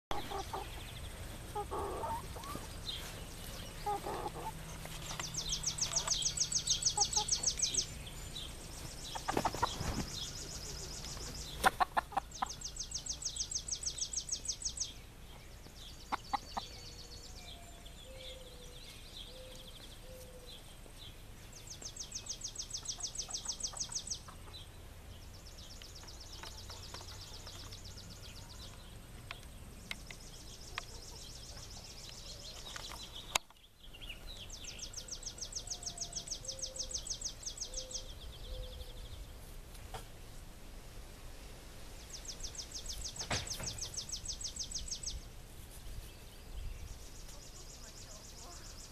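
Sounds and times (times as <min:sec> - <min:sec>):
hens clucking: 0:00.1 - 0:12.8, 0:16.0 - 0:16.8, 0:22.8 - 0:24.7.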